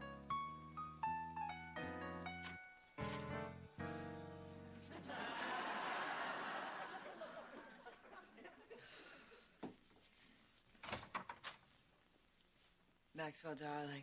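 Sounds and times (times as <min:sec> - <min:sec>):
studio audience laughing: 0:04.9 - 0:08.9.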